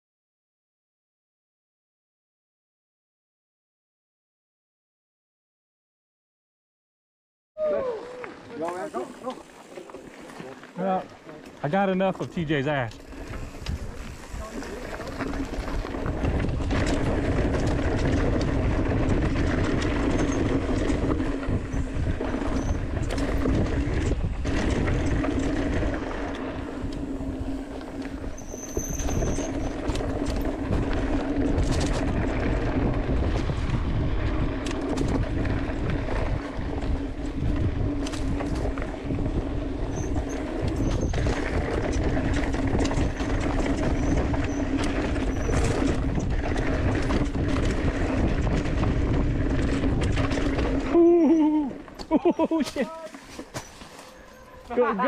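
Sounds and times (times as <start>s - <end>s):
bike tyres rumbling over dirt: 7.6s - 55.0s
bike rattling and clicking: 8.6s - 55.0s
wind on microphone: 13.1s - 51.8s.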